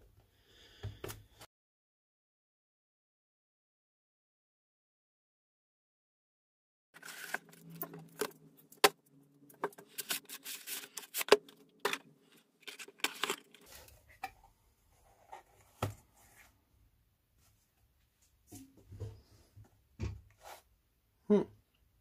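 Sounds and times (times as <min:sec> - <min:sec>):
cardboard crackling and rustling: 0:07.0 - 0:08.4.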